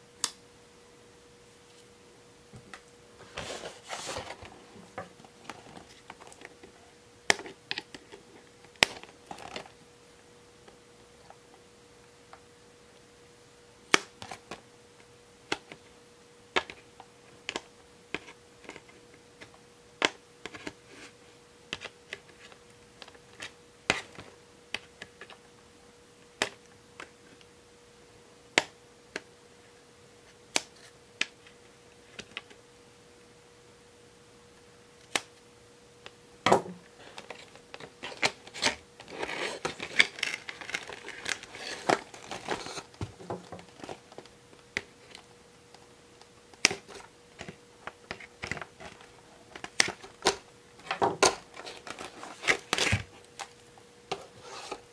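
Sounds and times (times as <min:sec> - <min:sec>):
plastic packaging crinkling: 0:37.0 - 0:44.3, 0:48.1 - 0:53.6.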